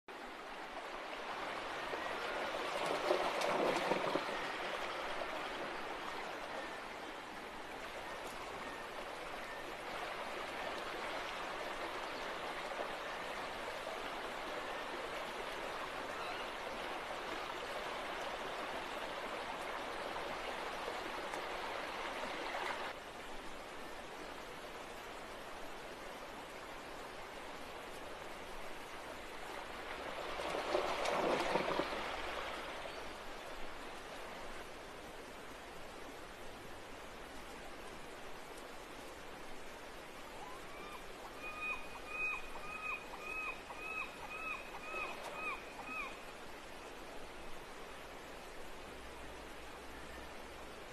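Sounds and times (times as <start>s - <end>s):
stream rushing over stones: 0.1s - 50.9s.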